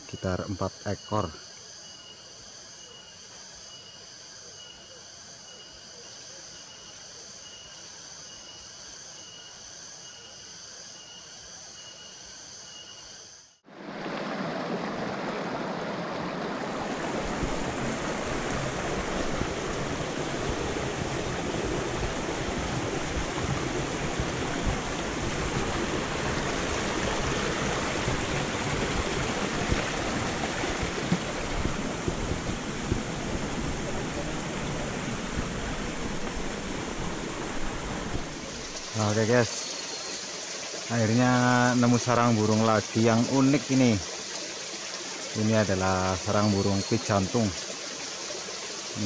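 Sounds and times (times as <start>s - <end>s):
insects buzzing: 0.0s - 13.6s, 14.2s - 49.0s
stream rushing over rocks: 13.6s - 49.0s.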